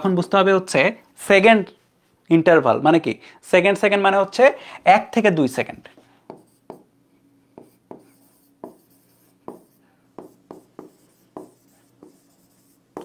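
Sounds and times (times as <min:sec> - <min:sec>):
stylus tapping and scratching screen: 0:06.0 - 0:06.9, 0:07.5 - 0:13.0.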